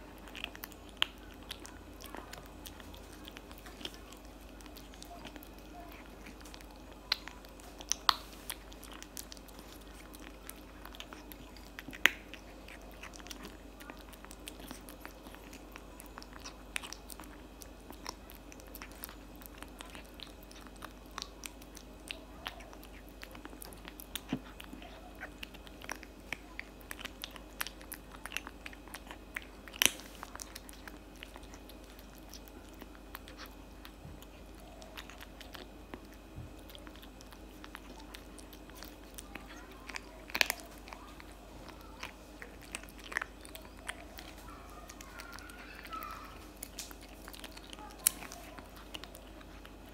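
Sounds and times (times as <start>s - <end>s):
kitten crunching cat food: 0.0s - 49.9s.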